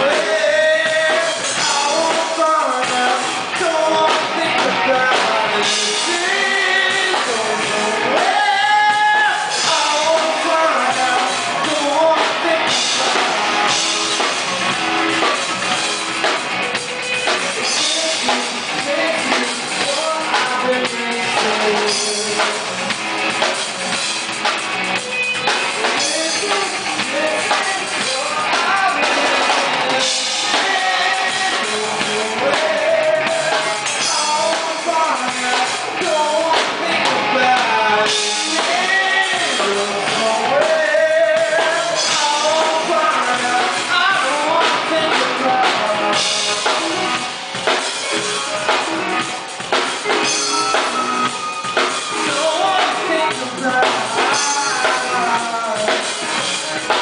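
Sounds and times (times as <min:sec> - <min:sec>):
person singing: 0:00.0 - 0:24.0, 0:25.0 - 0:57.0
rock band playing live: 0:00.0 - 0:57.0.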